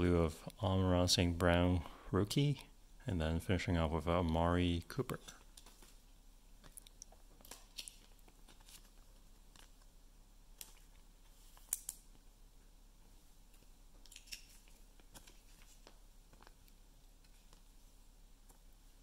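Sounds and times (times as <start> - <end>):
cards and foil packs rustling: 5.1 - 6.0, 6.6 - 9.9, 14.0 - 17.8.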